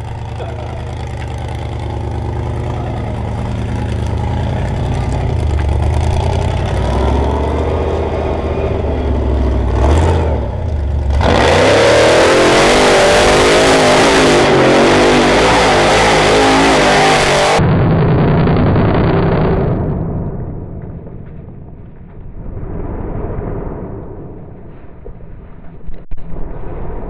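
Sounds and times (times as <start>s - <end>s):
buggy engine revving: 0.0s - 19.8s.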